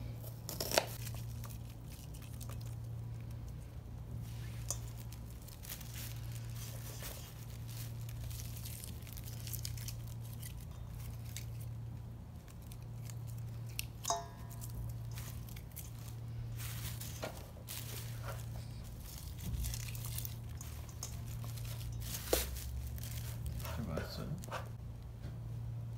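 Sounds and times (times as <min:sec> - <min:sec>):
steady low hum: 0:00.0 - 0:25.9
vegetables tossed in a bowl: 0:12.7 - 0:24.6
steel bowl ping: 0:14.0 - 0:14.7.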